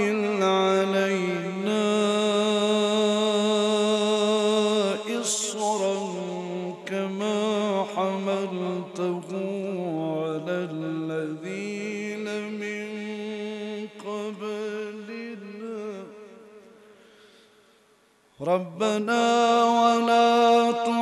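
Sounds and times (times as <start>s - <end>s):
man chanting melodically: 0.0s - 16.6s, 18.4s - 21.0s
loud voice: 5.1s - 6.6s.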